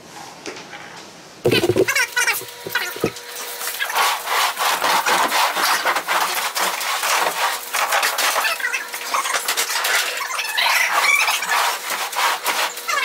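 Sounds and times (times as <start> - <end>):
wooden crate scraping on floor: 1.5 - 3.2.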